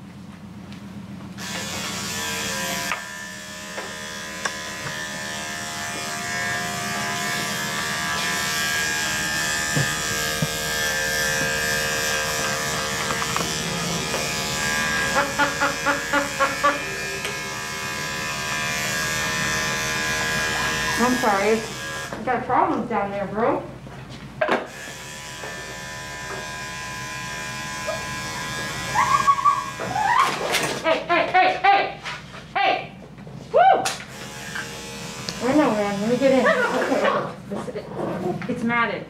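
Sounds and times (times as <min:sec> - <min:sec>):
electric clippers running: 0:01.4 - 0:22.2, 0:24.4 - 0:30.1, 0:34.0 - 0:37.2.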